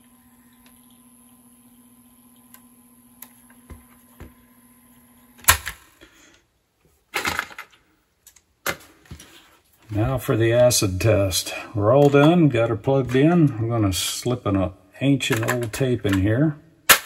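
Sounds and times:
cassette recorder motor hum: 0.0s - 5.9s.

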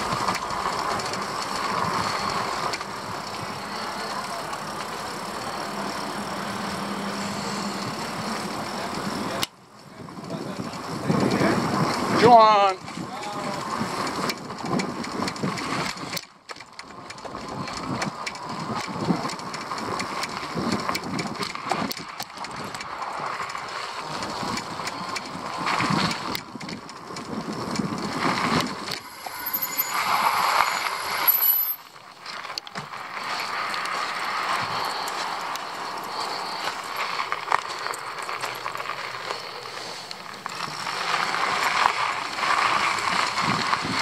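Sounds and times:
small vehicle rattling on concrete: 0.0s - 44.0s
thin high squeal: 29.0s - 31.9s.

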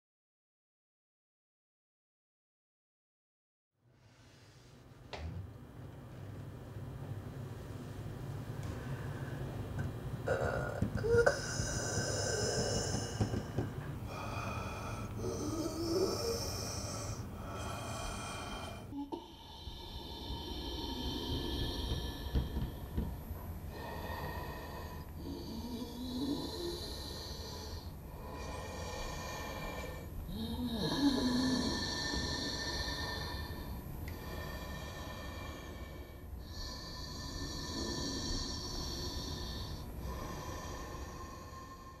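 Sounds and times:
low voice-like moan: 10.2s - 17.8s
low drone: 10.2s - 42.0s
woman breathing noisily: 10.2s - 42.0s.

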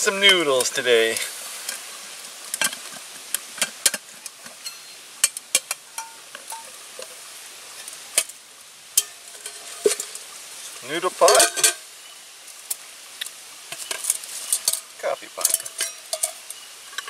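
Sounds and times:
small fire crackling: 0.0s - 17.0s
metal cook pots clinking: 4.6s - 7.2s, 9.0s - 10.3s, 11.2s - 11.9s, 13.7s - 17.0s.

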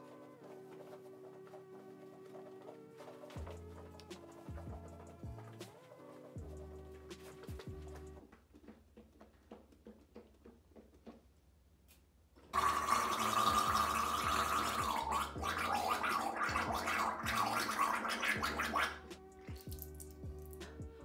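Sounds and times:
faint background music: 0.0s - 21.0s
person gargling: 12.6s - 19.0s.

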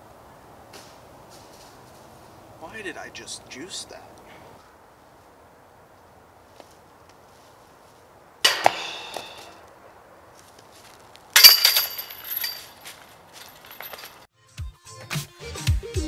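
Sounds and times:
disc dropping onto ground: 8.4s - 9.6s
disc hitting basket chains: 8.4s - 9.7s, 11.3s - 14.3s.

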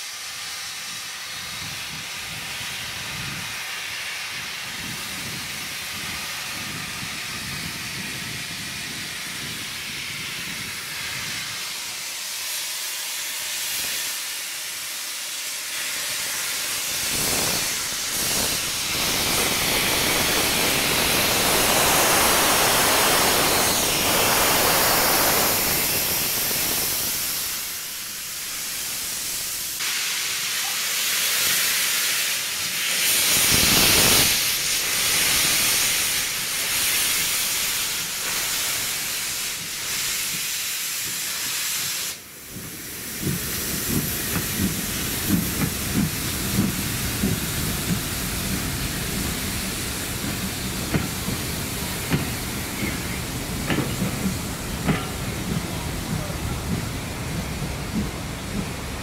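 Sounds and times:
steam locomotive hissing steam: 0.0s - 59.0s
train coaches rumbling past: 0.0s - 59.0s
train wheel clicks: 33.0s - 59.0s.

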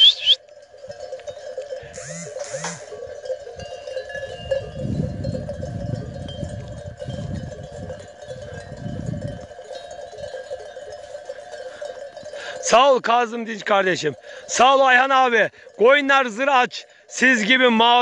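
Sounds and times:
sheep bells jingling: 0.0s - 18.0s
low rumble on microphone: 4.6s - 9.5s.

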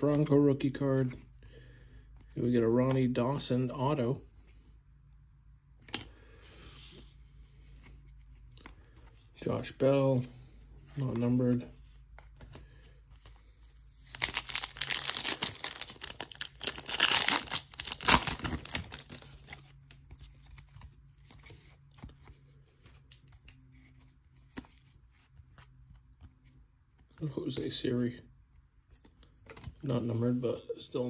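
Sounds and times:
cards ticking and rustling: 11.1s - 27.7s
foil wrapper tearing and crinkling: 14.1s - 19.4s.

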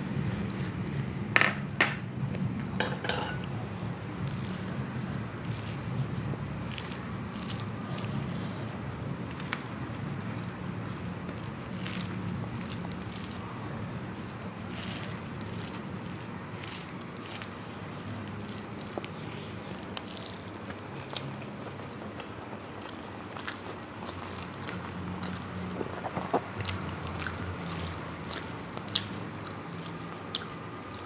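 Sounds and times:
steady low hum: 0.0s - 31.0s
clinks against a plate: 1.4s - 2.1s, 2.8s - 3.5s
wet chewing: 3.4s - 31.0s.

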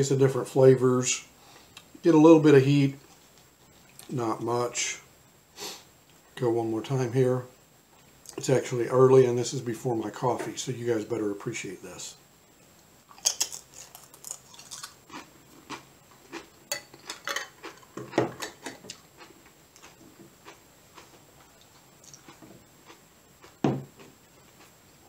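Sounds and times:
tortilla chip crunching: 13.1s - 17.9s.

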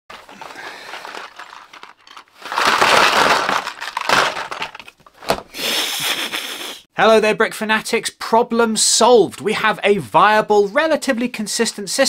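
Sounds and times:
cardboard boxes clattering onto table: 0.1s - 5.5s
bag rustling: 0.1s - 5.6s.

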